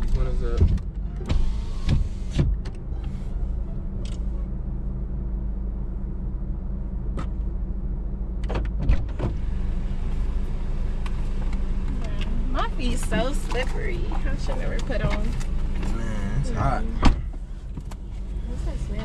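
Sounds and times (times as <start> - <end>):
car engine humming: 0.0 - 19.0.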